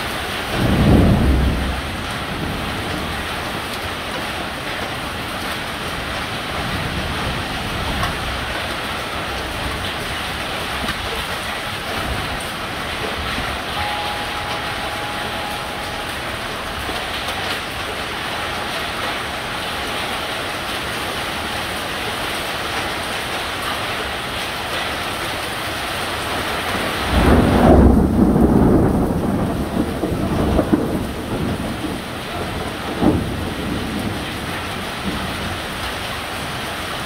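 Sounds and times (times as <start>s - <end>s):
heavy rain hissing: 0.0s - 37.0s
thunder rumbling: 0.4s - 5.2s, 26.9s - 35.8s.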